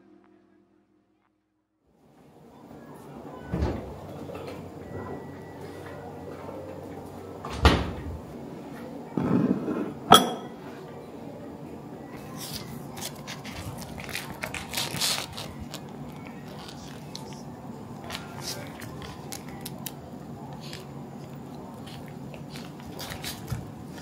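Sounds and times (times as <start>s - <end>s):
ceramic bowl set on wooden table: 9.2s - 10.7s
plastic pack crinkling: 12.5s - 17.4s.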